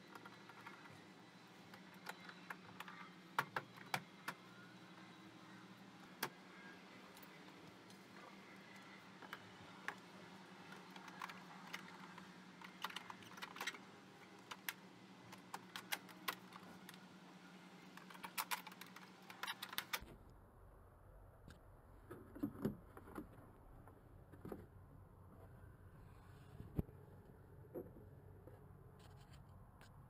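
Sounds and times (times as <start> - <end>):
steady low hum: 0.0 - 30.0
plastic clicks and rattles: 10.7 - 17.0.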